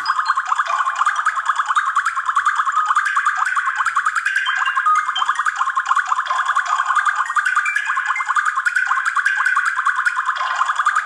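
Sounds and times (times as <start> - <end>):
phone ringtone melody: 0.0 - 0.6.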